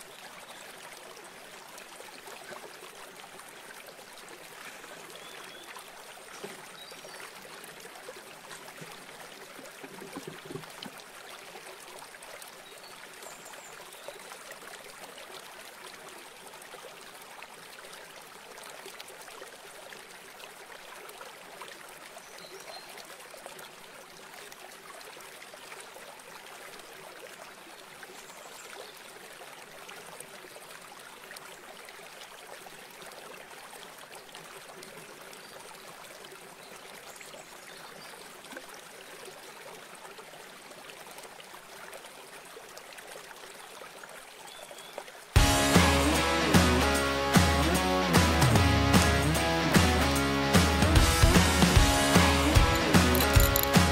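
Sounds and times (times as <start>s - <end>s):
water rushing over rocks: 0.0s - 11.9s, 52.5s - 53.9s.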